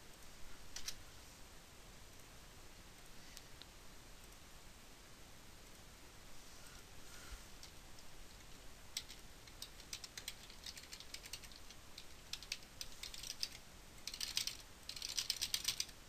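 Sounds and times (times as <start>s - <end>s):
computer keyboard key clicks: 9.0s - 15.9s.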